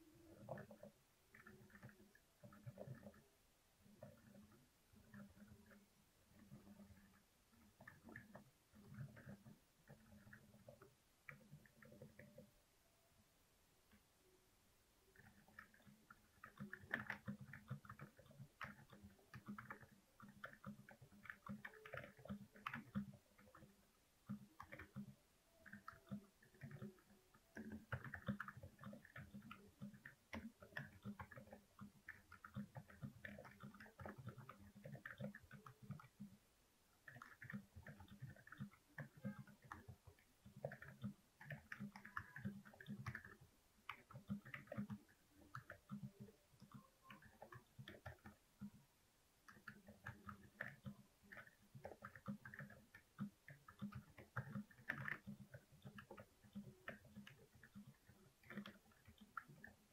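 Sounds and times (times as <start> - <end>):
soft mechanical keyboard typing: 0.0 - 12.7, 13.8 - 59.9.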